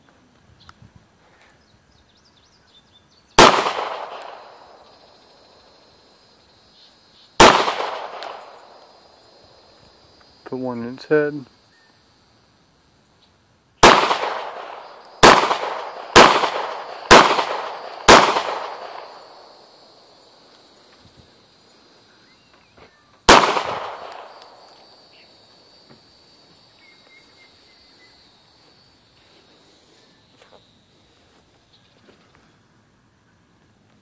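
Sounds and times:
pistol shots with echo: 0:03.4 - 0:04.8, 0:07.4 - 0:08.9, 0:13.8 - 0:19.7, 0:23.3 - 0:24.7.

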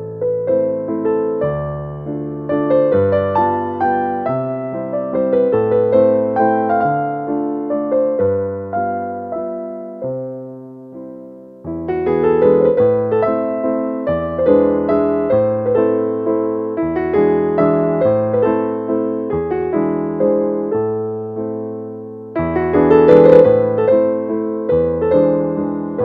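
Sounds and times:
gentle piano melody: 0:00.0 - 0:26.0.

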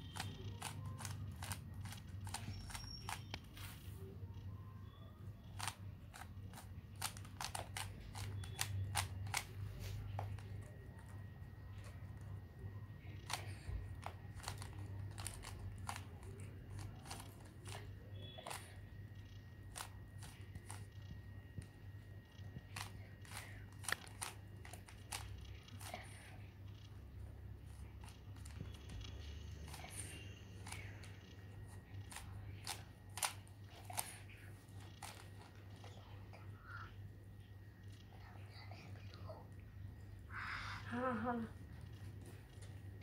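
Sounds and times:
puzzle cube clicking: 0:00.0 - 0:03.5, 0:05.4 - 0:10.8, 0:13.0 - 0:21.2, 0:22.3 - 0:26.9, 0:27.8 - 0:35.9
puzzle cube layers clicking: 0:00.0 - 0:03.5, 0:05.4 - 0:10.5
low steady hum: 0:00.0 - 0:43.0.

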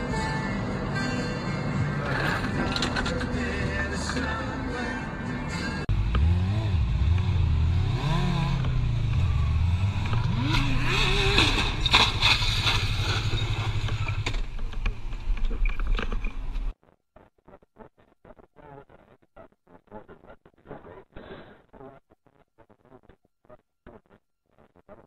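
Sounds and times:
motorcycle scraping and clattering: 0:02.0 - 0:03.4, 0:08.5 - 0:16.7
motorcycle engine revving: 0:05.9 - 0:15.2.

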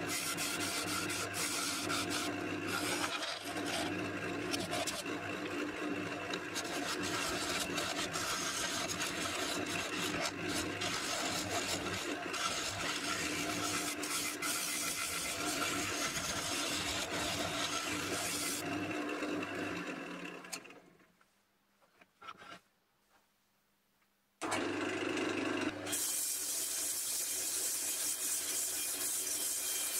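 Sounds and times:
scraper rasping on wood: 0:00.0 - 0:05.1, 0:06.4 - 0:18.6
lathe motor hum: 0:00.0 - 0:20.7.

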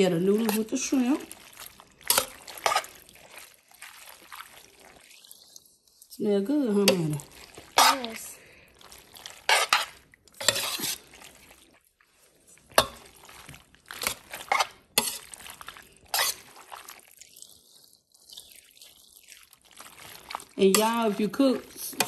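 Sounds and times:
pasta sloshing in pot: 0:00.0 - 0:22.0
spoon scraping pot: 0:02.0 - 0:03.4, 0:09.3 - 0:11.4, 0:12.6 - 0:16.9, 0:20.0 - 0:22.0.

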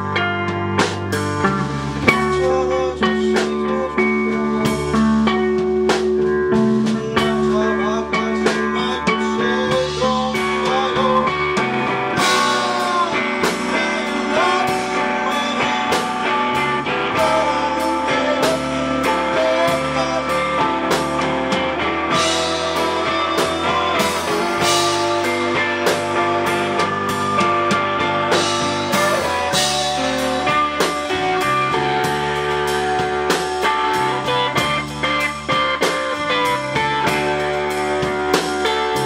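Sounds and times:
drums keeping a steady beat: 0:00.0 - 0:39.0
electric guitar: 0:00.0 - 0:39.0
man singing: 0:02.1 - 0:05.9, 0:06.5 - 0:32.1.

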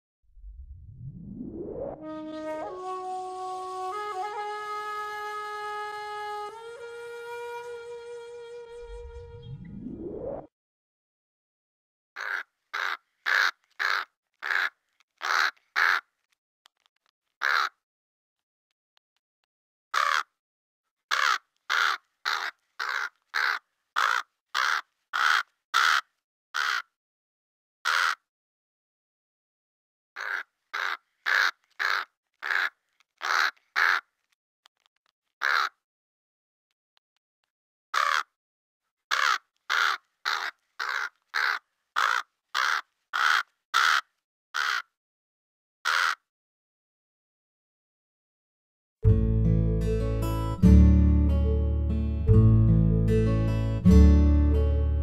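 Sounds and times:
crow cawing: 0:12.2 - 0:16.1, 0:17.4 - 0:17.8, 0:20.0 - 0:20.3, 0:21.1 - 0:26.9, 0:27.9 - 0:28.2, 0:30.2 - 0:34.1, 0:35.4 - 0:35.8, 0:38.0 - 0:38.3, 0:39.1 - 0:44.9, 0:45.9 - 0:46.2.

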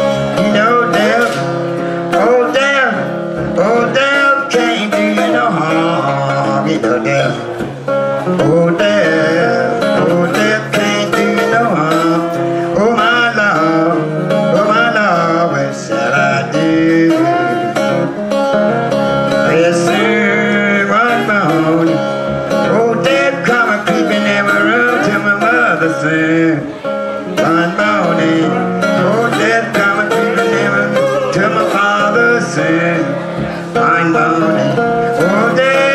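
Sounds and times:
acoustic guitar: 0:00.0 - 0:35.9.

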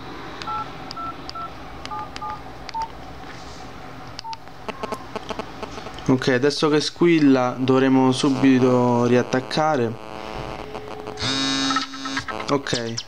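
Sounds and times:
phone keypad beeps: 0:00.5 - 0:02.9, 0:04.2 - 0:05.0.

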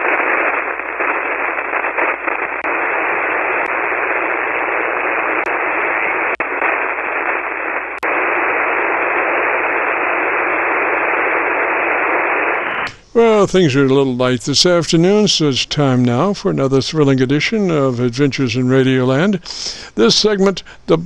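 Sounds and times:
radio receiver hiss: 0:00.0 - 0:21.0.

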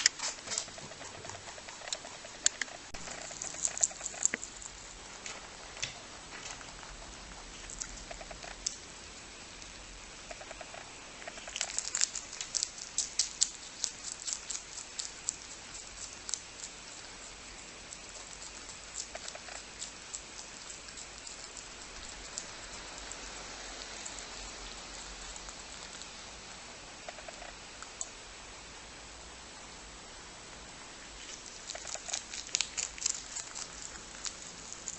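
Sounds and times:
rabbit chewing leaves: 0:00.0 - 0:28.5, 0:31.0 - 0:34.9.

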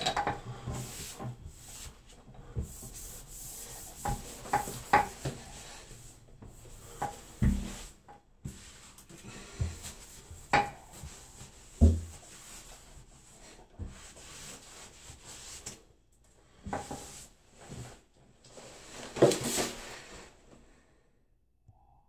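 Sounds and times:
sponge rubbing on wallpaper: 0:00.6 - 0:07.9.

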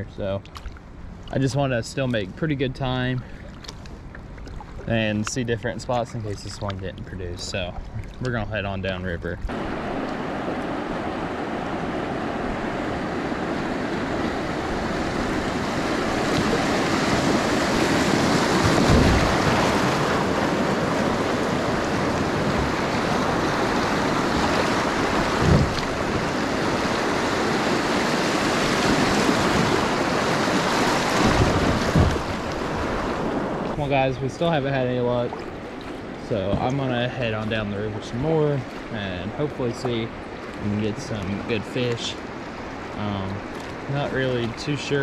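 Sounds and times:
water rushing over river riffle: 0:03.2 - 0:45.0
short low thumps: 0:31.1 - 0:33.0.

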